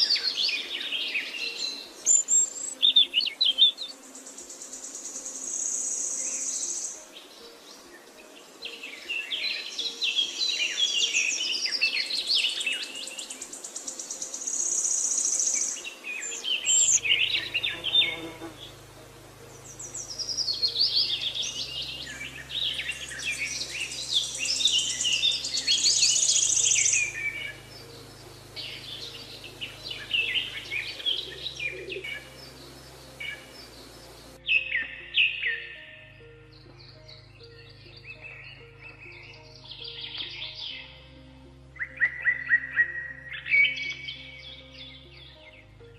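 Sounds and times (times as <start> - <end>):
songbirds singing and chirping: 0.0 - 45.9
high buzzing bird trills: 9.1 - 35.6
low sustained drone: 16.9 - 34.4.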